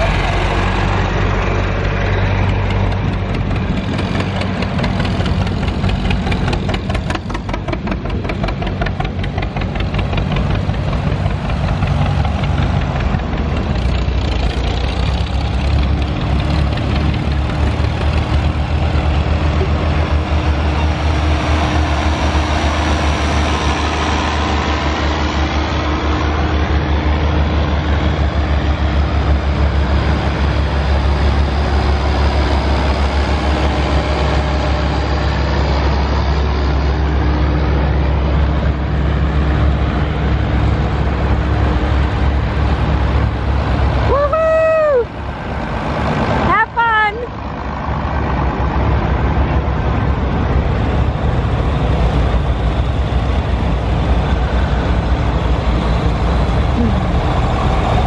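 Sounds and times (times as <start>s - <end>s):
deep tractor engine beat: 0.0s - 44.1s
tractor engines running: 0.0s - 58.0s.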